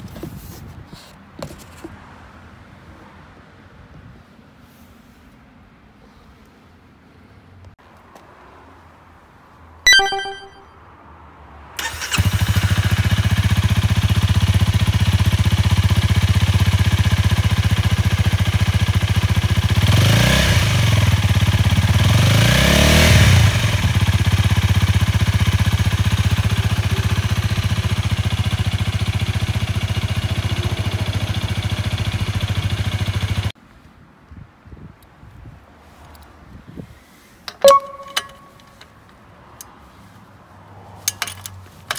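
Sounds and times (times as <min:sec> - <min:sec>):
short bright beep: 0:09.9 - 0:10.7, 0:37.6 - 0:38.8
motorcycle engine idling and revving: 0:11.8 - 0:33.6.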